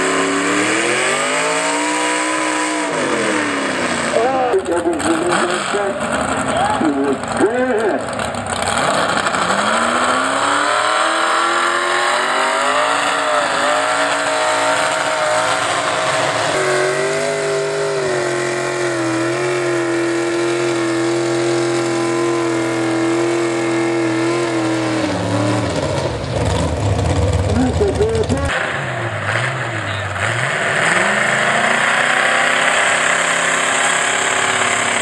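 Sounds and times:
tractor engine at full throttle: 0:00.0 - 0:35.0.

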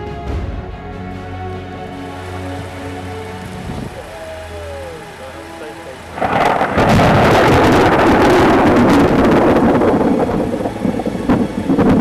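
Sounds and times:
thunder rumbling and crackling: 0:06.1 - 0:12.0.

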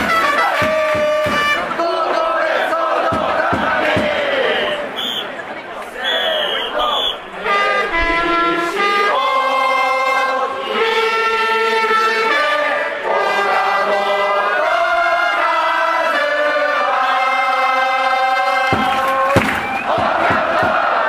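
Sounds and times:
trumpets playing a melody: 0:00.0 - 0:01.8, 0:07.3 - 0:19.4
crowd singing along: 0:00.0 - 0:21.0.

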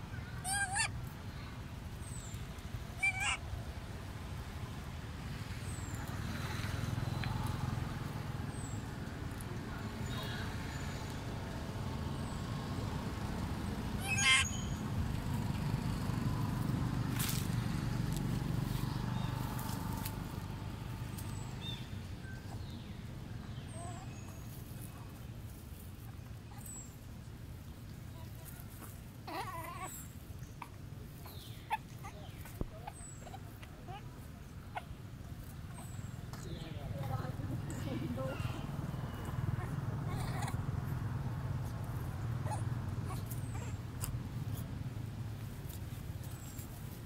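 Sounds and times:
young monkey wavering cry: 0:00.4 - 0:01.0, 0:03.0 - 0:03.4, 0:14.0 - 0:14.8, 0:29.2 - 0:35.0, 0:38.7 - 0:40.7, 0:41.9 - 0:44.6.

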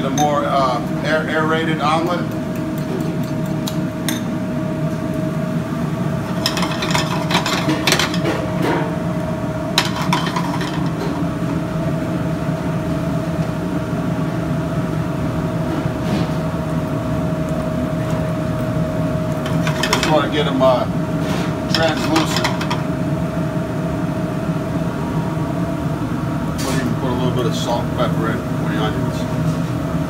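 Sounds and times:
kitchen ventilation hum: 0:00.0 - 0:30.0
pans and utensils clattering: 0:06.4 - 0:08.9.

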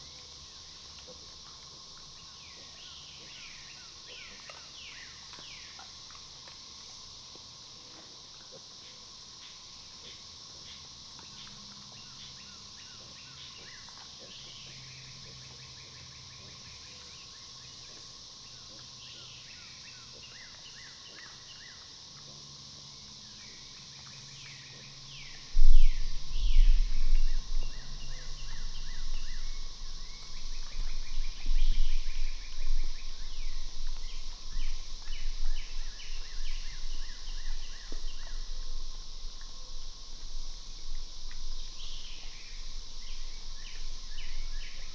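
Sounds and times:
insect drone: 0:00.0 - 0:44.9
uneven low rumbling: 0:24.7 - 0:44.9.

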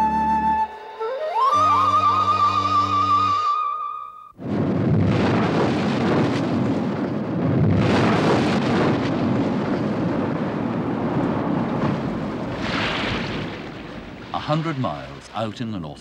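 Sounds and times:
breaking seas rushing: 0:04.4 - 0:16.0.

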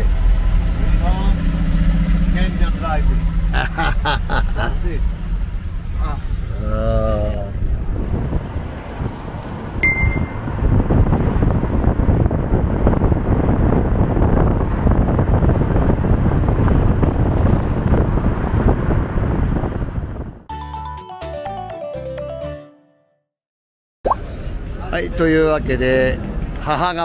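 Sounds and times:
car rumble: 0:00.0 - 0:20.5
city traffic: 0:00.0 - 0:20.5, 0:24.1 - 0:27.0
wind buffeting microphone: 0:05.1 - 0:20.4
high beep: 0:09.8 - 0:10.5.

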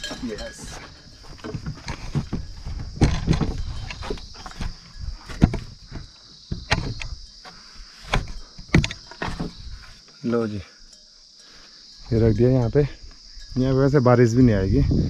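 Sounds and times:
footsteps on dry soil: 0:00.0 - 0:06.5
wood knocking and scraping: 0:00.0 - 0:10.1
high insect-like drone: 0:00.0 - 0:15.0.

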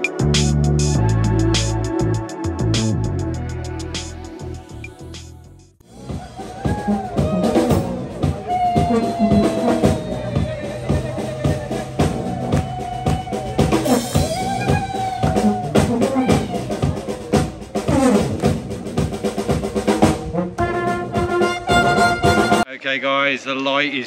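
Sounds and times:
drum kit beat: 0:00.0 - 0:22.7
brass band playing: 0:05.9 - 0:22.7.

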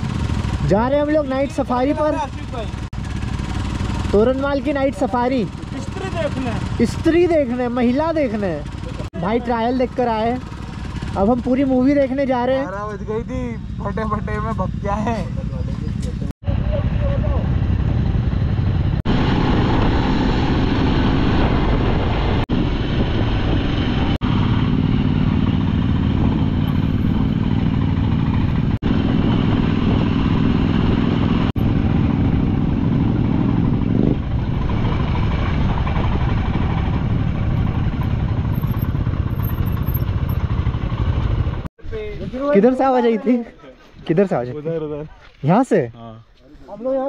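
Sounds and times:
motorcycle engine running: 0:00.0 - 0:41.7
road noise: 0:00.0 - 0:47.0
wind noise: 0:17.1 - 0:42.6.

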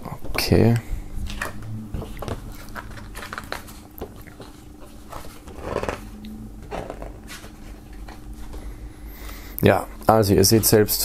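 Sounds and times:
book pages turning: 0:01.3 - 0:08.6.

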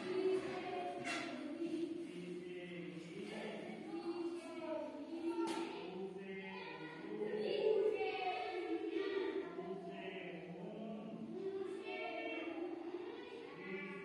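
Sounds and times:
group singing in chorus: 0:06.0 - 0:11.6.

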